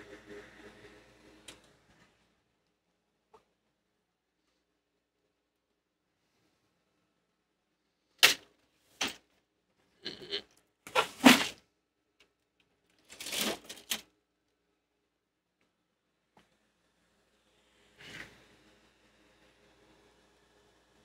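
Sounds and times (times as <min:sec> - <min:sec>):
small hard objects clattering: 0:13.0 - 0:14.0.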